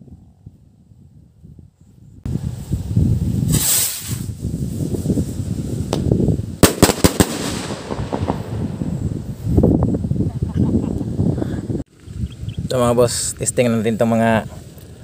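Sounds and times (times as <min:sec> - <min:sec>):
wind rumble on microphone: 0:00.0 - 0:15.0
rocket hiss: 0:02.3 - 0:09.8
firework crack: 0:03.2 - 0:09.8
firework bangs: 0:03.5 - 0:04.4, 0:05.8 - 0:09.5.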